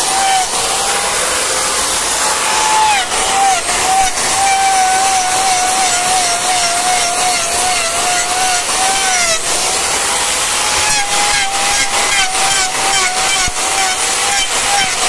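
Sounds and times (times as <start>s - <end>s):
angle grinder grinding hoof: 0.0s - 15.0s.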